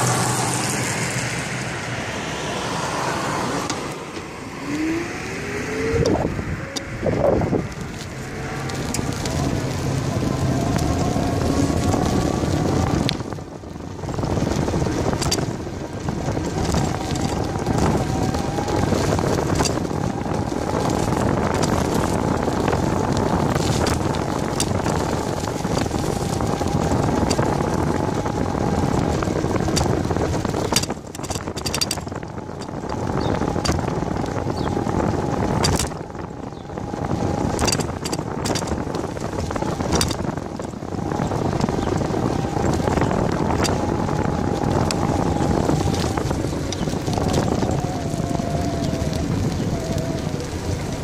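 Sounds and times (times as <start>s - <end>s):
tyre noise on road: 0.0s - 51.0s
wind buffeting microphone: 0.0s - 51.0s
bike clicks and knocks: 15.2s - 15.5s, 30.6s - 32.8s, 35.6s - 36.0s, 37.6s - 39.0s, 39.8s - 40.7s.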